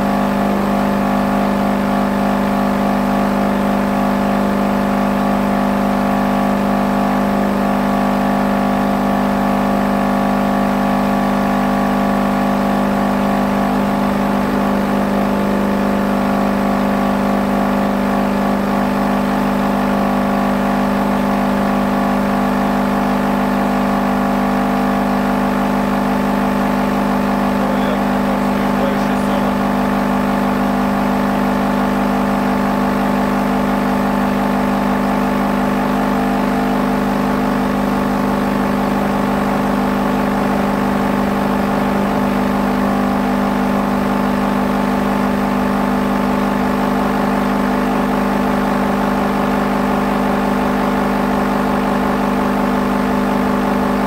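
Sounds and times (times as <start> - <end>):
subwoofer playing low test tone: 26.0 - 33.5.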